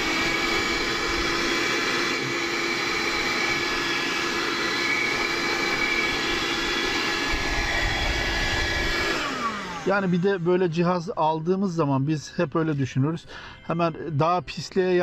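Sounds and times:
handheld vacuum cleaner running: 0:00.0 - 0:11.1.

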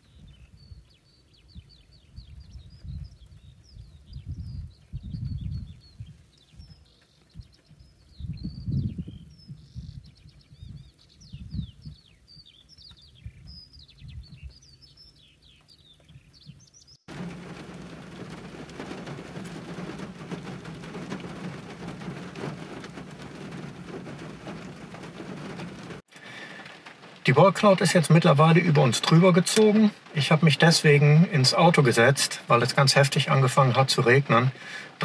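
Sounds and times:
wind gusts on microphone: 0:00.0 - 0:15.1
songbirds chirping: 0:00.0 - 0:35.0
heavy rain hiss: 0:17.1 - 0:35.0.

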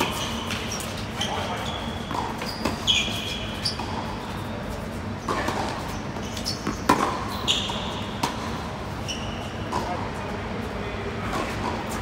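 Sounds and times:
rackets striking tennis ball: 0:00.0 - 0:04.2, 0:05.2 - 0:08.7
sneakers squeaking on court: 0:00.0 - 0:10.1.

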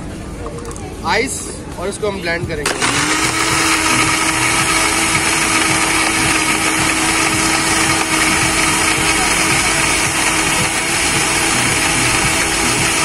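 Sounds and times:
blender motor whining: 0:02.6 - 0:13.0.

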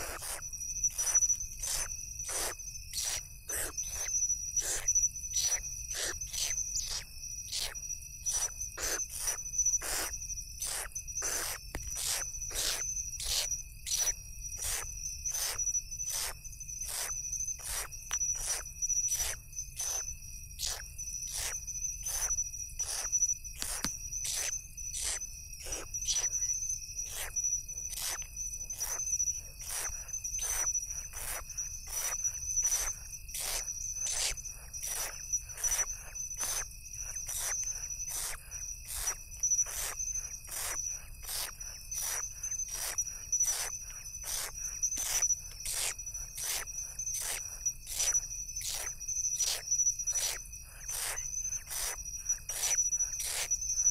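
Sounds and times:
owl chicks rasping hisses: 0:00.0 - 0:18.6, 0:20.6 - 0:26.3, 0:29.6 - 0:49.6, 0:50.2 - 0:53.5
high-pitched insect drone: 0:00.0 - 0:53.9.

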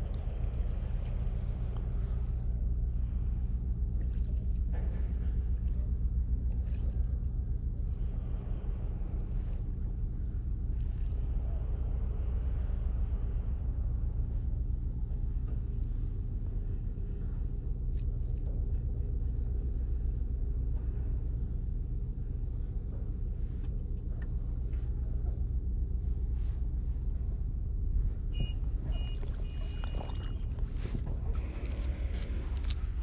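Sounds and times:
hum of even tones: 0:07.8 - 0:33.0.

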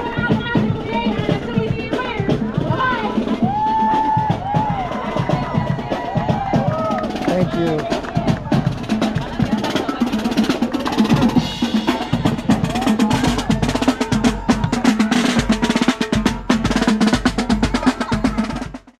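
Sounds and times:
marching band playing: 0:00.0 - 0:19.0
snare drums: 0:00.0 - 0:19.0.

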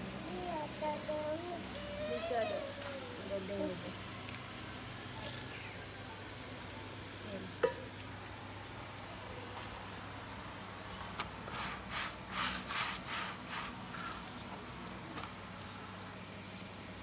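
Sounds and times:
tongs scraping a pan: 0:11.4 - 0:14.3.

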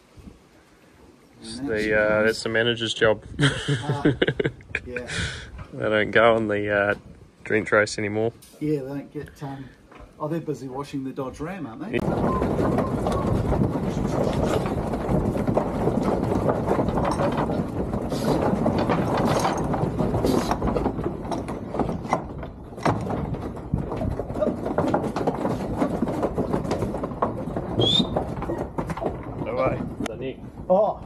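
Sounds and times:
clattering and rattling: 0:12.0 - 0:31.0.

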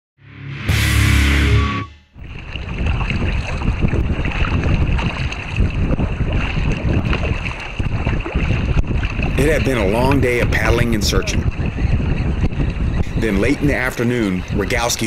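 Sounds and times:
intro music: 0:00.2 - 0:02.2
water lapping around kayak: 0:02.2 - 0:15.0
wind buffeting microphone: 0:02.2 - 0:15.0.

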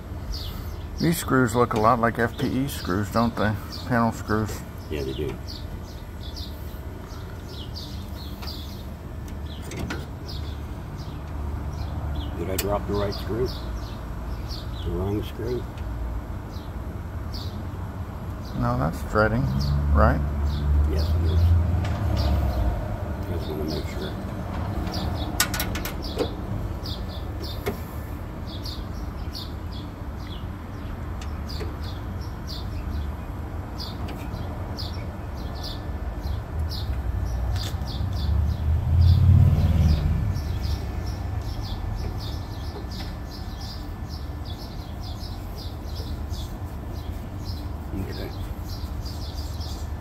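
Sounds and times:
small bird chirping: 0:02.3 - 0:15.7, 0:22.2 - 0:50.0
vehicle passing: 0:19.2 - 0:25.5, 0:35.5 - 0:50.0.

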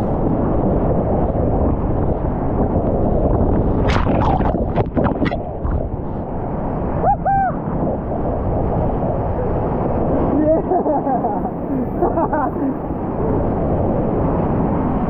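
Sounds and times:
sharp water splashes: 0:03.8 - 0:05.9.

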